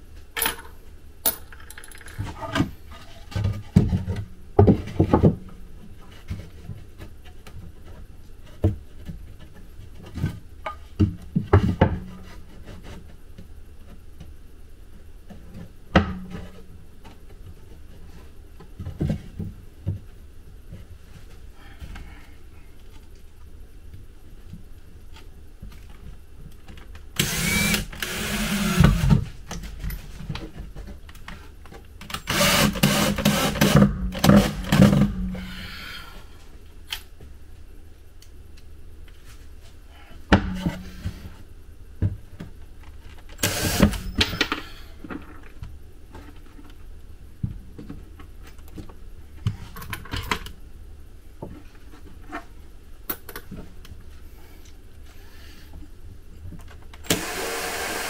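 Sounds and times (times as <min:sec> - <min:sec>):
cordless drill driving screws: 0:27.2 - 0:29.0, 0:32.3 - 0:34.6, 0:43.4 - 0:44.0, 0:57.1 - 0:58.0.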